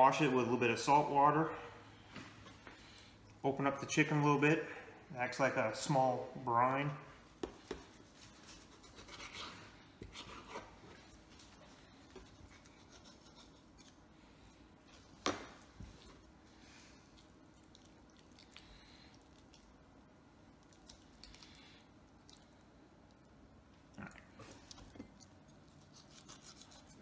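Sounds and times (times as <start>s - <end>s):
knife scraping on cutting board: 8.1s - 10.8s.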